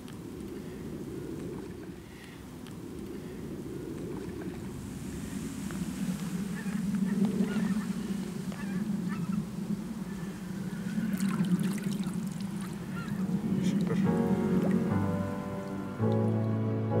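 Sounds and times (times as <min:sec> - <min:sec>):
geese honking: 0:06.4 - 0:16.4
light water splashing: 0:11.1 - 0:16.6.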